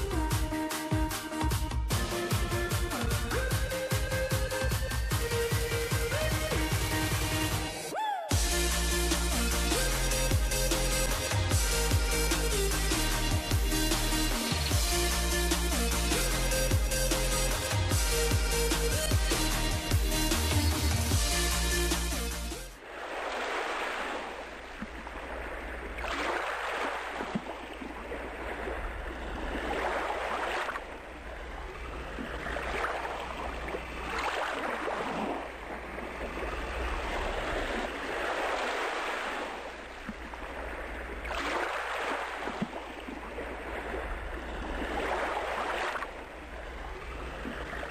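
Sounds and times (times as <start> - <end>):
electronic music: 0.0 - 22.8
water splashing around a boat: 0.0 - 47.9
steady low rumble: 8.3 - 22.8, 46.1 - 47.9.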